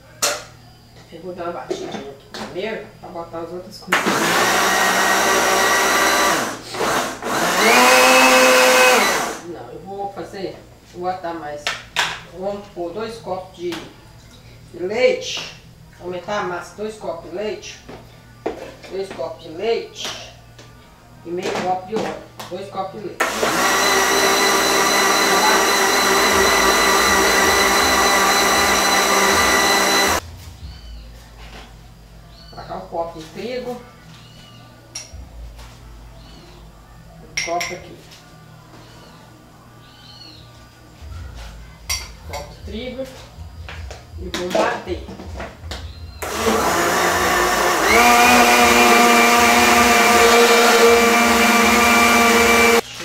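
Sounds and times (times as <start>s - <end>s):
blender whirring: 3.9s - 9.4s, 23.2s - 30.2s, 46.2s - 52.8s.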